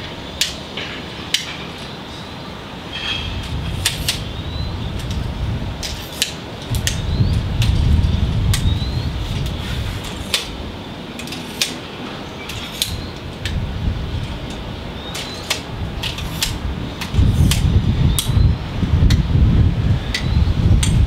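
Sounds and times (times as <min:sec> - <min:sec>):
tripod legs clicking and knocking: 0:00.4 - 0:01.9, 0:03.1 - 0:04.3, 0:05.0 - 0:07.9, 0:09.3 - 0:13.6, 0:14.2 - 0:18.4, 0:20.1 - 0:21.0
wind rumble on microphone: 0:02.8 - 0:11.1, 0:12.0 - 0:21.0.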